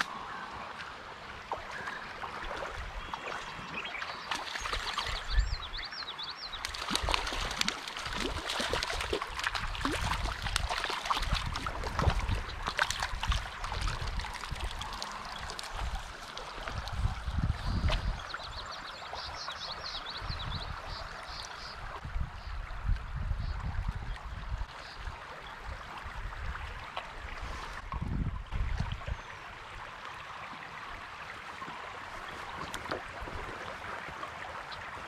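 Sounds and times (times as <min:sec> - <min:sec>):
creek water running over riffle: 0:00.0 - 0:35.0
fish splashing in water: 0:06.6 - 0:16.9.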